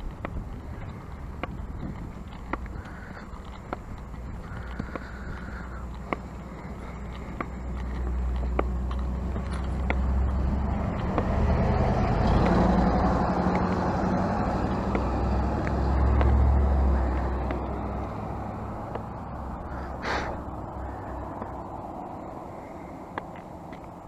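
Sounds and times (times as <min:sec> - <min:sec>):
pickup truck driving past: 0:07.6 - 0:22.5.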